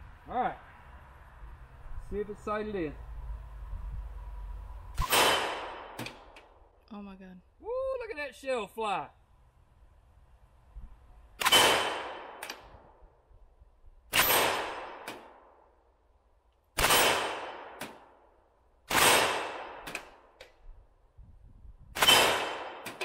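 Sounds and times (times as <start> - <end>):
rifle shots echoing: 5.0 - 6.4, 11.4 - 12.8, 14.1 - 15.6, 16.8 - 18.1, 18.9 - 20.2, 22.0 - 23.0.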